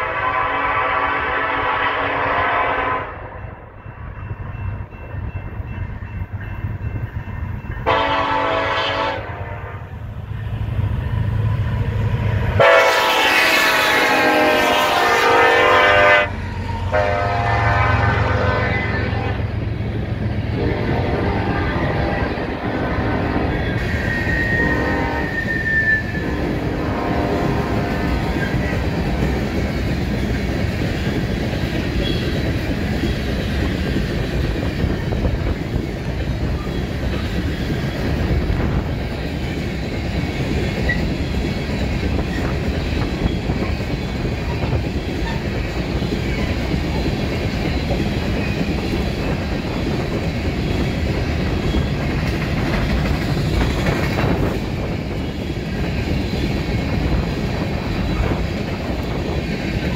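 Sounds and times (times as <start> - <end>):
train cars rolling past: 0.0 - 59.9
steel wheels clattering over rails: 27.5 - 59.9.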